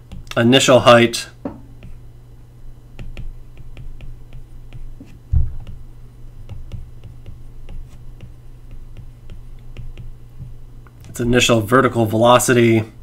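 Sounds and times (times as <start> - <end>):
steady low hum: 0.0 - 13.0
low thump: 5.3 - 5.7.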